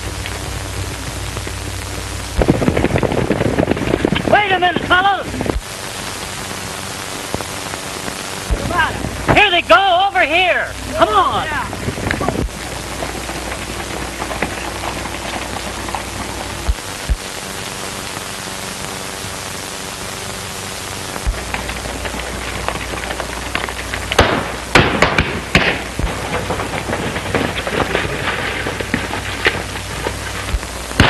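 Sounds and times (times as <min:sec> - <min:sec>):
film soundtrack hiss: 0:00.0 - 0:31.0
rapid gunshots: 0:21.2 - 0:27.5.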